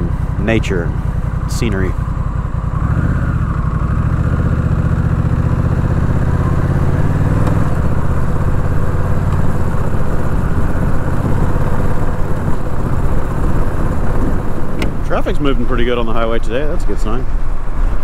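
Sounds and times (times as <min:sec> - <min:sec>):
motorcycle engine accelerating: 0:00.0 - 0:18.0
wind noise: 0:08.8 - 0:18.0.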